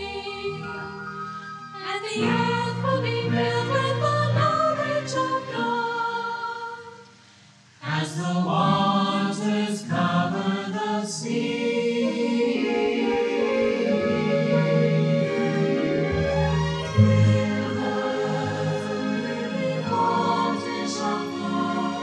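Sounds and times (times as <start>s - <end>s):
choir singing sustained chords: 0.0s - 22.0s.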